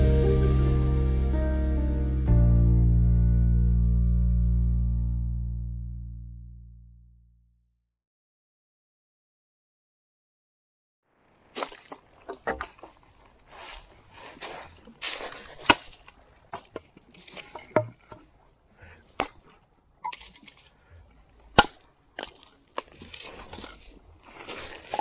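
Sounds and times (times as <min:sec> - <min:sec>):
footsteps on gravel: 0:11.6 - 0:17.7, 0:22.2 - 0:25.0
wooden sticks cracking: 0:13.6 - 0:18.2, 0:19.2 - 0:20.8, 0:21.5 - 0:25.0.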